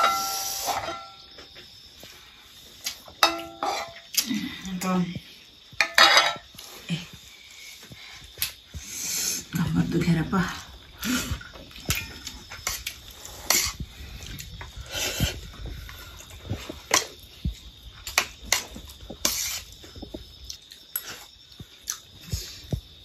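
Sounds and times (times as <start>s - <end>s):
chewing and lip-smacking: 19.7s - 22.3s.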